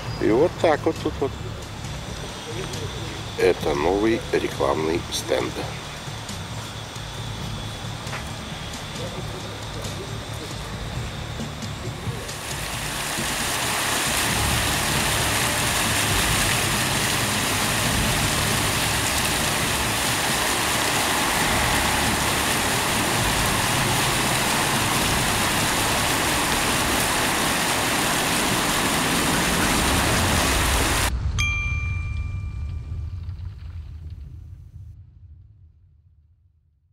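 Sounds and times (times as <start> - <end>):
fountain water jets splashing: 0.2 - 31.1
low rumble: 12.1 - 36.8.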